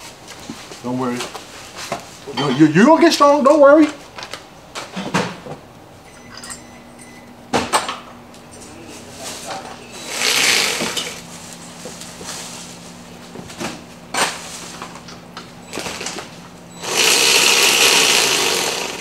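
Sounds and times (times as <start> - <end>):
impact wrench running: 10.0 - 11.2, 15.6 - 19.0.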